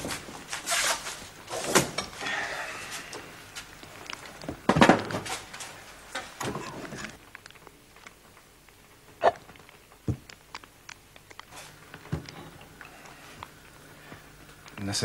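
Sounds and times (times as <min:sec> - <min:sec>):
kitchen knocks and clatters: 0:04.5 - 0:07.2.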